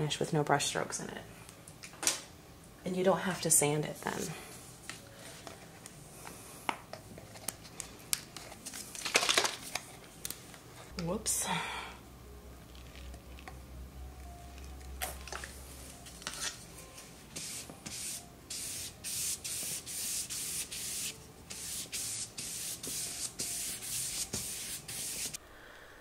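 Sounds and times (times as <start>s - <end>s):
spray bottle hissing: 17.4s - 25.4s.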